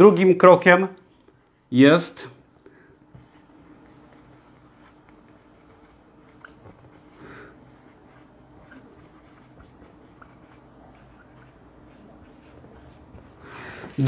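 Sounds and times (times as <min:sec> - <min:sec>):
marker writing on whiteboard: 0:03.1 - 0:14.0.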